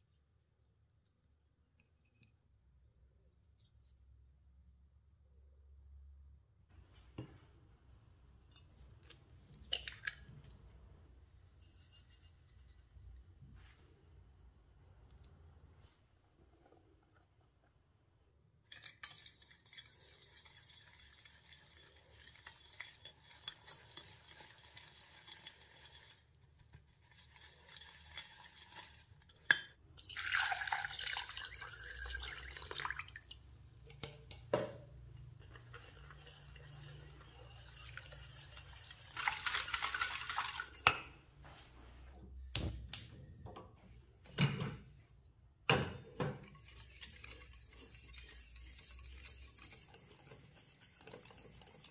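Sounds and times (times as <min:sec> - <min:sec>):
whisk scraping a metal bowl: 0:11.1 - 0:13.2, 0:18.7 - 0:29.5, 0:33.5 - 0:40.9, 0:46.2 - 0:51.9
milk pouring: 0:29.9 - 0:41.0.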